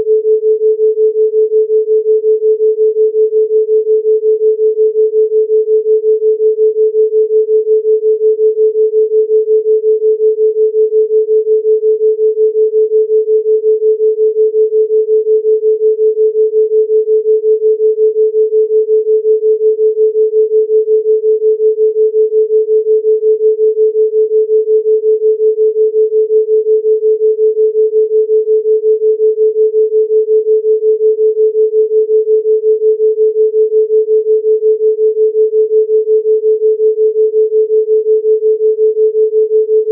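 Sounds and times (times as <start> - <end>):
pulsing electronic pure tone: 38.4 - 39.9.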